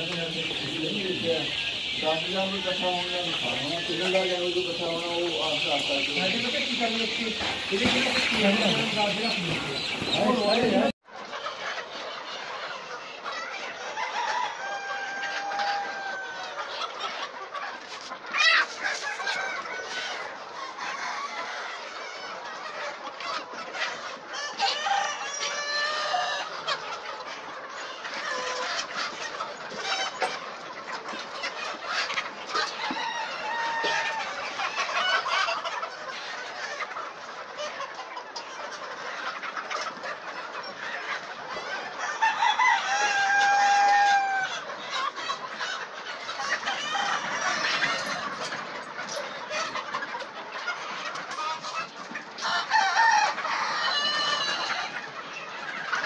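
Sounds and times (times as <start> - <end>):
hens clucking and squawking: 0.0 - 56.0
rooster crowing: 42.2 - 44.5, 52.6 - 54.6.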